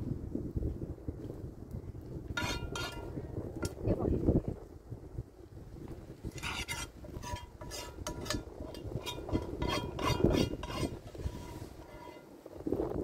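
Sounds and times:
hard objects clinking and scraping: 2.4s - 3.1s, 6.3s - 12.4s.

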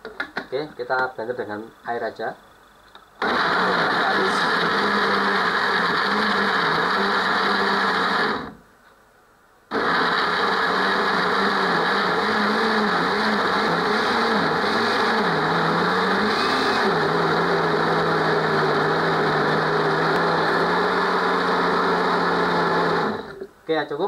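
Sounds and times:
electric blender motor running: 3.2s - 8.6s, 9.7s - 23.4s.

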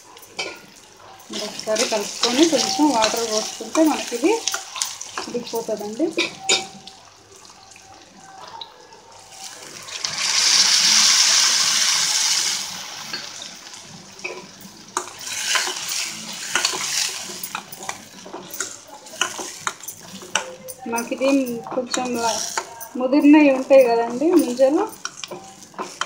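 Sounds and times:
spoon stirring and clinking pot: 0.0s - 7.1s, 14.2s - 26.0s
water hissing in hot pot: 0.0s - 8.3s, 9.0s - 20.4s.

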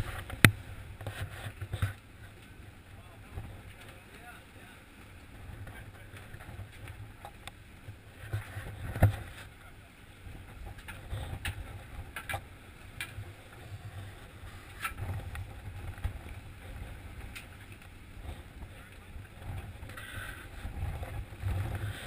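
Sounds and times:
boat engine rumble: 0.0s - 22.0s
wind buffeting microphone: 10.2s - 22.0s.

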